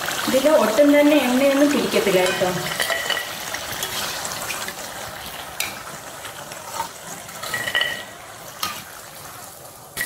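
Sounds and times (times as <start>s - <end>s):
dough balls sizzling in hot oil: 0.0s - 10.0s
metal spoon scraping in a pot: 2.2s - 4.8s, 5.6s - 9.0s.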